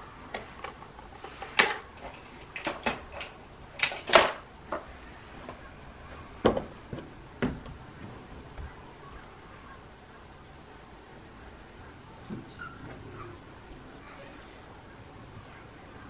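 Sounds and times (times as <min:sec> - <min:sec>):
air rifle clicks and clacks: 0:00.3 - 0:04.9.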